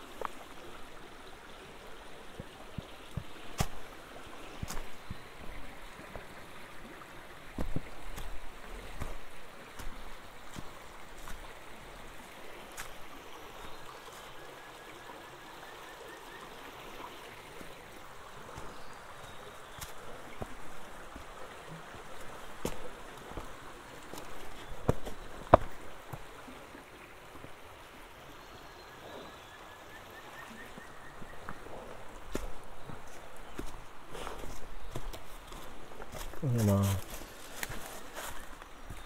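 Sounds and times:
stream running over rocks: 0.0s - 39.0s
footsteps on rocks and dry leaves: 2.4s - 6.4s, 7.5s - 14.4s, 17.6s - 21.4s, 22.0s - 26.4s, 30.8s - 39.0s.

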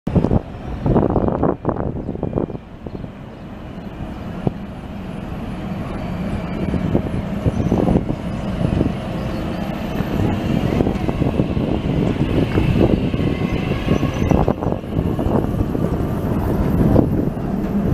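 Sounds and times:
tram running gear rumbling: 0.1s - 17.9s.

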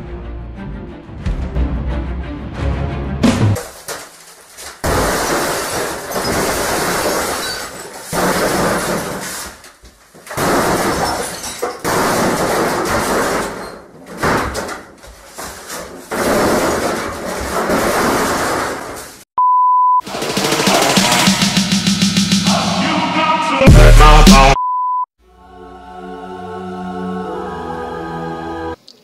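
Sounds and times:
glass and plastic crashing: 3.6s - 19.2s.

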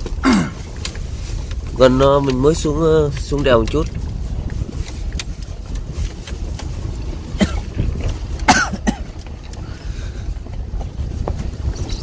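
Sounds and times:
vehicle rumble from inside cab: 0.0s - 12.0s
person coughing: 0.2s - 0.6s, 7.3s - 7.8s, 8.4s - 9.2s.

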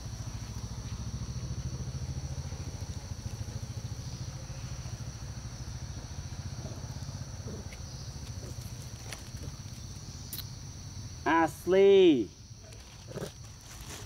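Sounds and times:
low pulsing engine rumble: 0.0s - 11.2s
high-pitched hiss: 9.6s - 12.7s.

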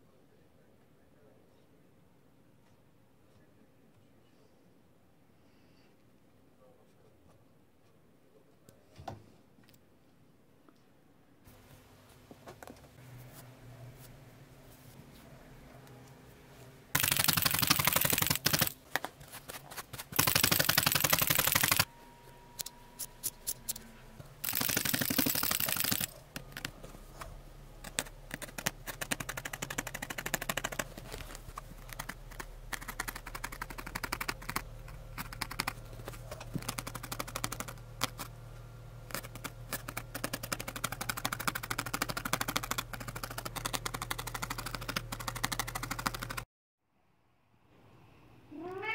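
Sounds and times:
felting needle stabbing mat: 17.0s - 21.9s, 24.4s - 27.0s, 27.8s - 38.4s, 39.1s - 46.4s.

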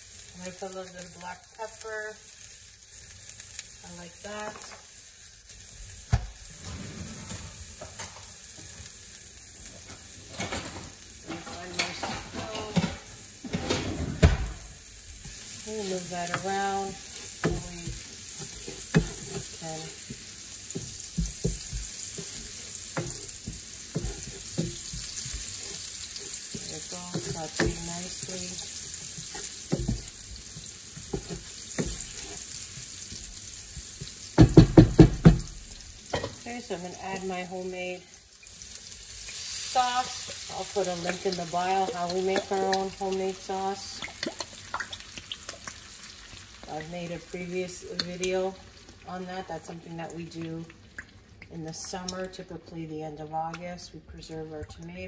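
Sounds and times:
onion sizzling in a frying pan: 0.0s - 52.5s
wooden spoon scraping pan: 6.5s - 8.3s, 15.2s - 32.9s.

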